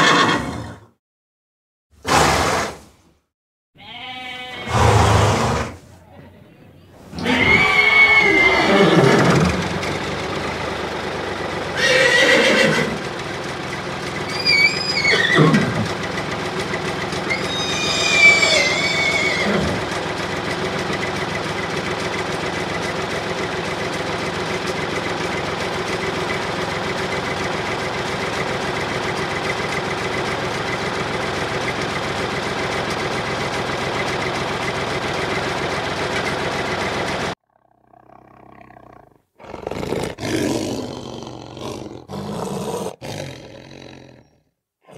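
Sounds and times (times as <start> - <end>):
horse whinnying: 0.0 - 0.9, 3.8 - 6.0, 7.0 - 9.8, 11.8 - 13.0, 14.3 - 15.9, 17.3 - 19.9
steady motor hum: 6.4 - 37.4.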